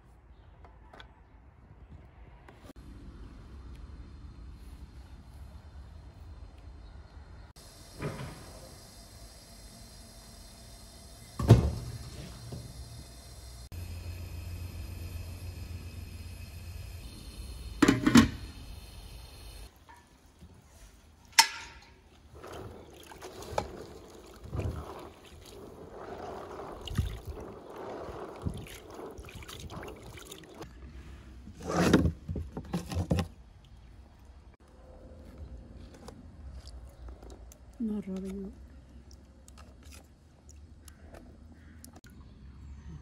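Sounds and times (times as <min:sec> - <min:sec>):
steady hum: 0:07.6 - 0:19.7
water sloshing and splashing: 0:21.2 - 0:34.5, 0:36.0 - 0:42.0.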